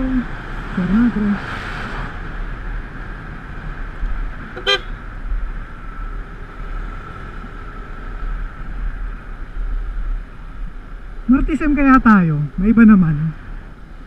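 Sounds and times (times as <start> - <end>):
wind and road noise: 0.0 - 14.0
vehicle horn toot: 4.6 - 5.0.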